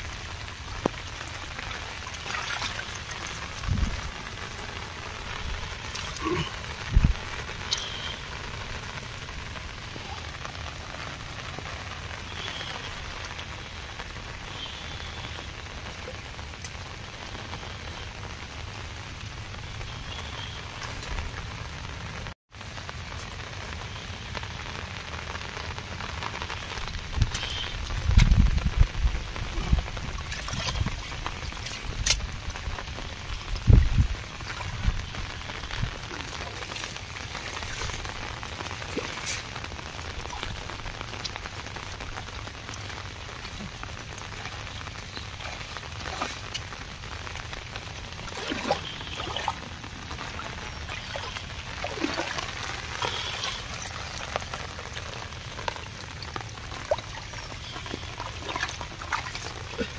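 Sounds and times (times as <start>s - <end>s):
rain falling on water: 0.0s - 59.9s.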